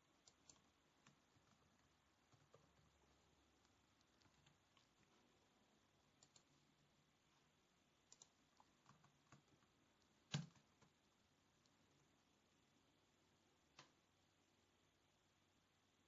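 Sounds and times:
computer keyboard typing: 0:00.0 - 0:05.0, 0:06.1 - 0:06.5, 0:08.0 - 0:11.0.

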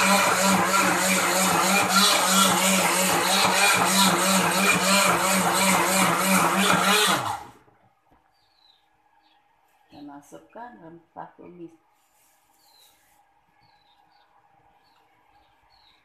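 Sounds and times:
electric blender running: 0:00.0 - 0:07.7.

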